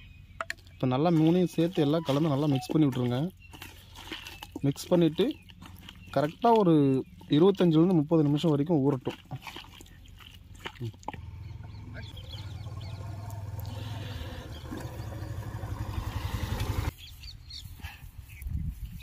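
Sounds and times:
birds chirping faintly: 0:00.0 - 0:19.0
pulsing motor rumble: 0:11.1 - 0:16.9.

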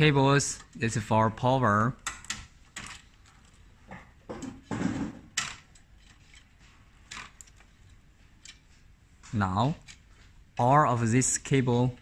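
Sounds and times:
cables rustling: 0:05.3 - 0:10.8.

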